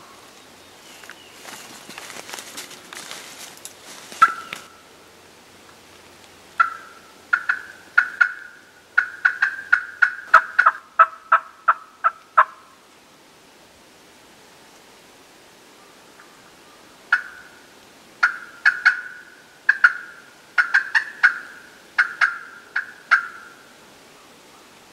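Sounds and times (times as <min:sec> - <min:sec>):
dry leaves crunching underfoot: 0:00.0 - 0:04.8
turkey clucking: 0:04.2 - 0:04.7, 0:06.6 - 0:12.6, 0:17.1 - 0:17.5, 0:18.2 - 0:23.6.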